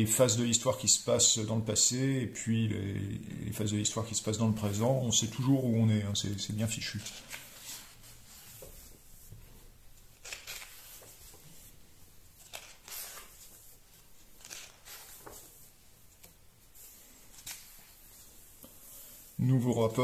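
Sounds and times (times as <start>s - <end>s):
pages turning: 6.2s - 9.2s, 10.0s - 18.8s.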